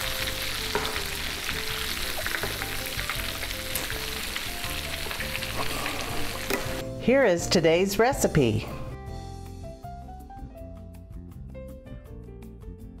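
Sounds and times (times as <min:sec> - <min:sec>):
chicken deep-frying in oil: 0:00.0 - 0:06.8.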